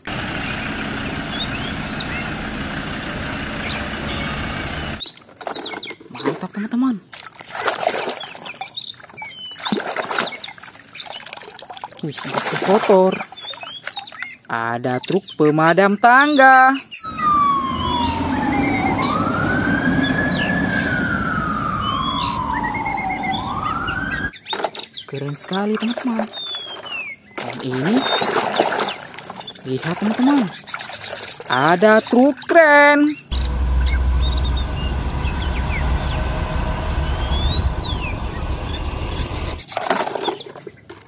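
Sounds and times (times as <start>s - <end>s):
diesel engine idling: 0.0s - 5.0s, 17.1s - 24.3s, 33.3s - 39.6s
truck rumbling: 0.0s - 5.0s, 17.0s - 24.3s, 33.2s - 39.7s
birds chirping: 0.0s - 7.1s, 8.0s - 11.4s, 12.0s - 40.9s
fire truck siren wailing: 17.0s - 24.3s, 33.3s - 39.6s.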